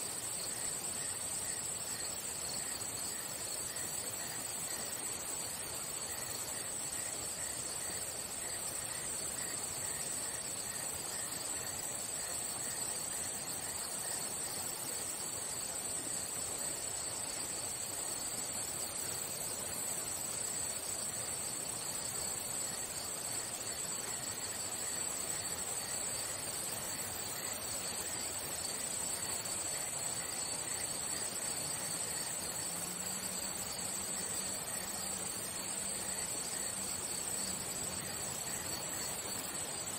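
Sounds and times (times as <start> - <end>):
insects trilling: 0.0 - 39.9
lower pulsing insect chirp: 0.0 - 39.9.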